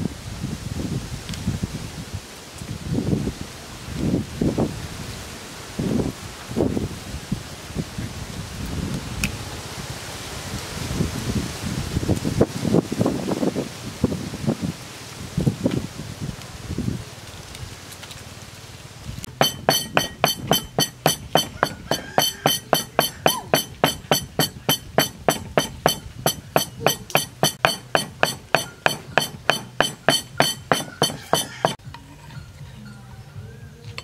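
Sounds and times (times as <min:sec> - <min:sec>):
wooden pestle pounding in mortar: 0:19.3 - 0:31.8.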